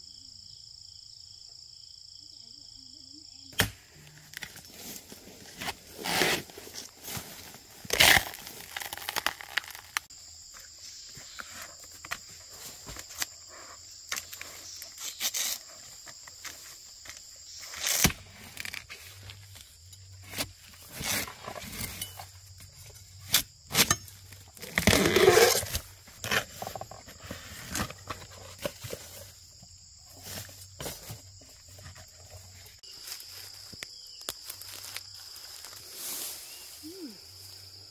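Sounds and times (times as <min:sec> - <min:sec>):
high insect drone: 0:00.0 - 0:37.9
knife hacking bamboo: 0:03.5 - 0:03.8
rustling through grass and leaves: 0:03.7 - 0:37.9.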